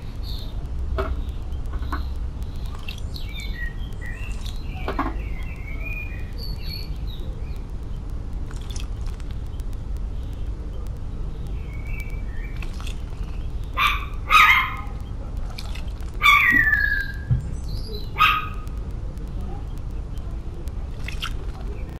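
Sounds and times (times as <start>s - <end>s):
low background rumble: 0.0s - 21.9s
dog barking: 13.8s - 14.9s, 18.2s - 18.6s.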